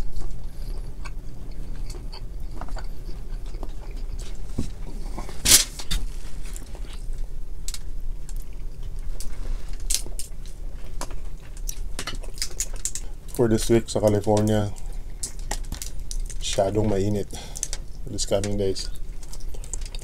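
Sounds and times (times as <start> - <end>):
person chewing: 0.0 - 7.2, 8.2 - 13.4, 14.1 - 16.4, 18.9 - 20.0
low steady hum: 0.0 - 20.0
cracking shellfish shells: 5.4 - 20.0.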